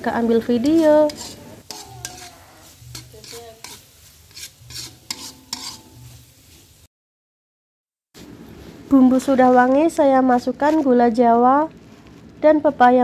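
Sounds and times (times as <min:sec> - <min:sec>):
spice paste sizzling: 0:00.0 - 0:06.9, 0:08.2 - 0:13.0
metal spatula scraping a wok: 0:00.1 - 0:06.8.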